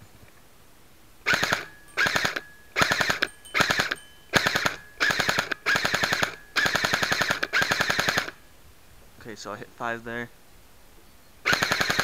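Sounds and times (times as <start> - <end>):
airsoft gun firing bursts: 1.3 - 8.4, 11.5 - 12.0.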